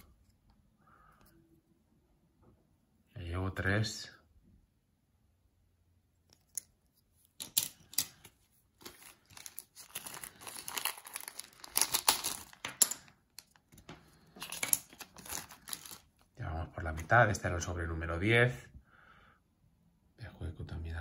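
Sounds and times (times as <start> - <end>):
foil wrapper tearing and crinkling: 8.8 - 12.6, 14.4 - 16.2.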